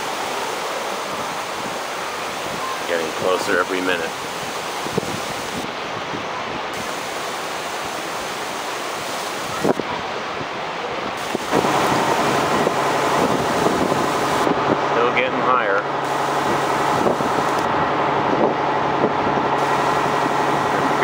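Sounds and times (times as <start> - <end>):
floodwater roaring: 0.0 - 21.0
wind on microphone: 0.9 - 21.0
steady low hum: 11.1 - 21.0.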